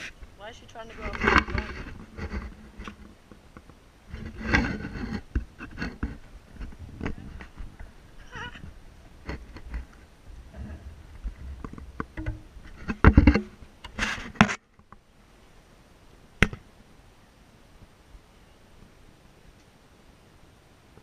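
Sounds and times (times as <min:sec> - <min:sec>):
scraping: 0:00.0 - 0:03.2, 0:04.1 - 0:14.6
dull knocks on fence: 0:12.0 - 0:13.6.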